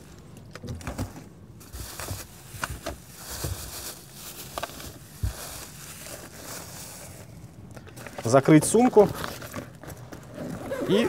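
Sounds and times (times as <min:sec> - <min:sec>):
soft knocks of packing: 0:00.6 - 0:06.3
rustling: 0:00.8 - 0:11.0.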